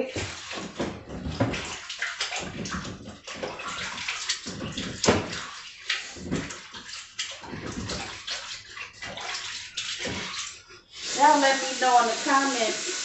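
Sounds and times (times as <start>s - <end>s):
faucet running into a sink: 0.0s - 13.0s
water splashing: 0.0s - 13.0s.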